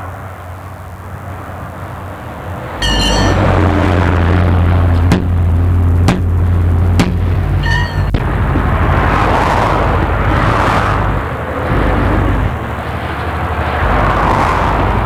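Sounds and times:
vehicle passing: 0.0s - 15.0s
hammer striking steel rim: 2.8s - 3.5s, 7.0s - 8.2s.

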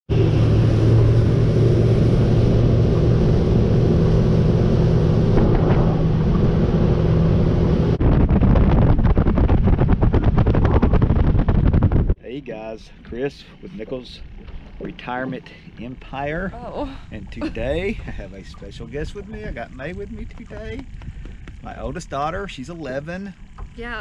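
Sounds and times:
wind buffeting microphone: 0.1s - 12.2s, 13.0s - 24.0s
wind rushing: 0.1s - 12.2s
outboard motor running: 0.1s - 24.0s.

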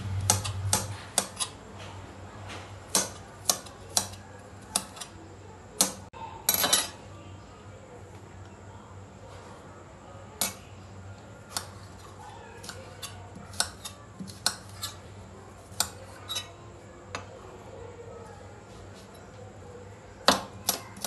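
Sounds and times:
knife chopping on stone countertop: 0.2s - 1.6s, 2.9s - 5.1s, 12.6s - 15.0s, 15.6s - 16.5s, 20.2s - 21.0s.

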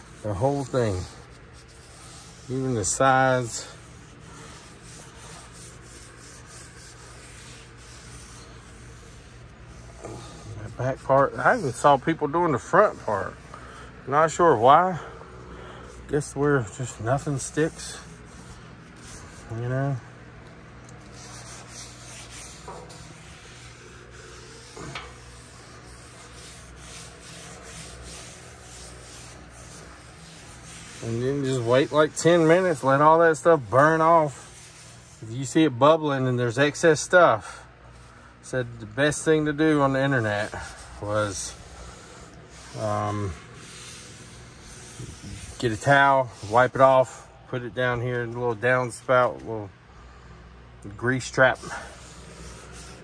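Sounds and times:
paper towel wiping steel griddle: 0.0s - 13.5s, 14.2s - 15.0s, 15.9s - 20.0s, 21.0s - 47.2s, 51.3s - 53.0s
steady low hum: 0.0s - 53.0s.

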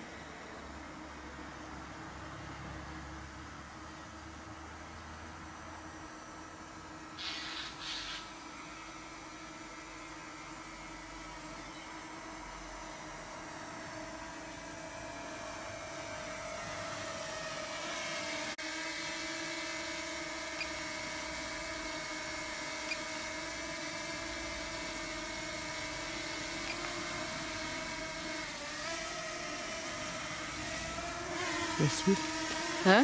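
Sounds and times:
drone propellers whining: 7.2s - 33.0s.

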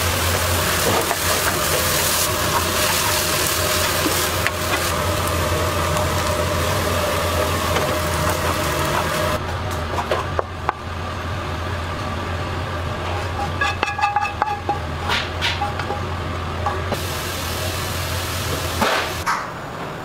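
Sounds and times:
low machine hum: 0.0s - 20.0s
wok and metal tray clinking: 13.4s - 16.1s.

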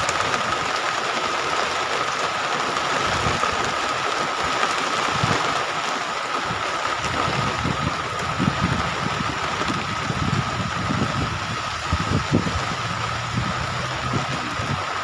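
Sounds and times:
wind gusting against microphone: 6.4s - 15.0s.

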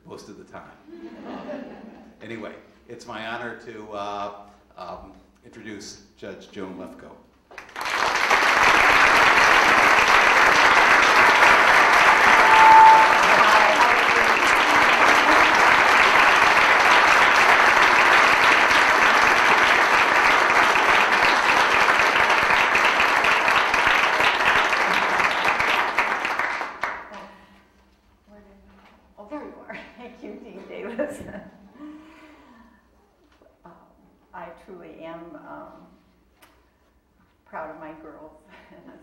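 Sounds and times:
audience applauding: 7.5s - 27.2s
steady tone: 12.0s - 14.3s.

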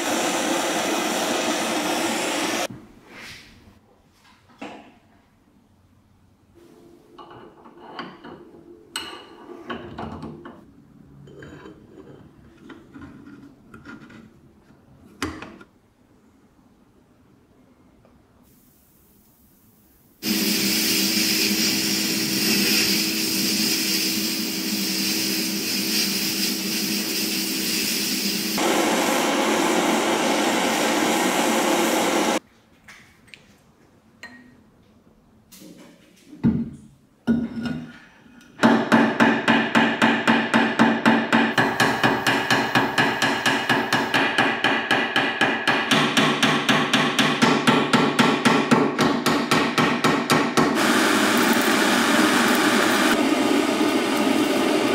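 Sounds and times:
loud steady machine noise: 0.0s - 2.7s, 27.4s - 32.4s, 50.8s - 54.9s.

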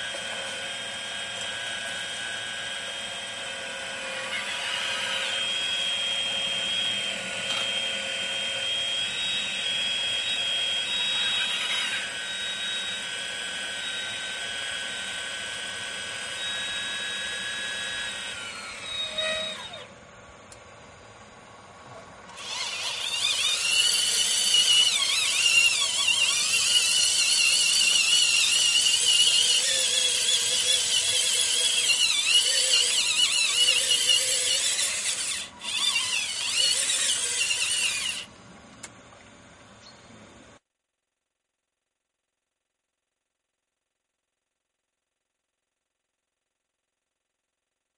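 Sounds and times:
electric motors whining: 0.0s - 20.6s, 22.2s - 38.3s.

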